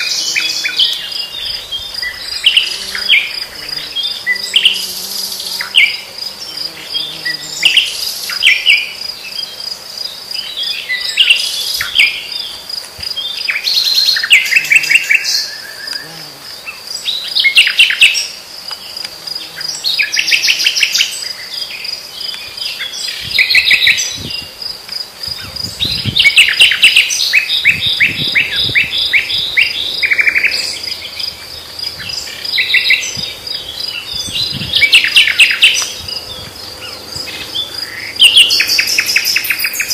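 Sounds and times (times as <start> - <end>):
nightingale singing: 0.0 - 9.7, 25.3 - 39.9
crickets trilling: 0.0 - 39.9.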